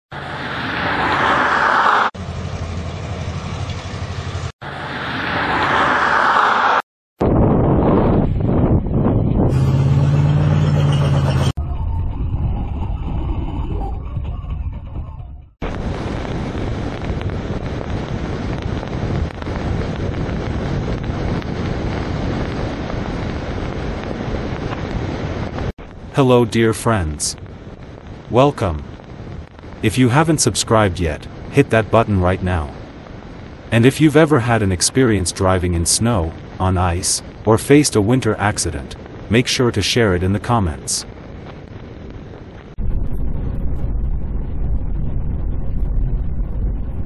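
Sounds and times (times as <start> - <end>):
hissing rush of vehicle: 0.1 - 6.8
wind on microphone: 7.2 - 10.2, 11.6 - 26.2, 41.0 - 47.0
car driving low rumble: 7.7 - 26.2, 40.2 - 47.0.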